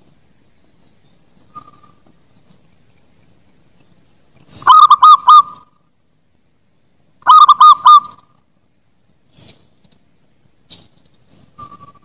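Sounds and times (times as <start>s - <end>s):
dove cooing: 4.5s - 5.7s, 7.3s - 8.2s.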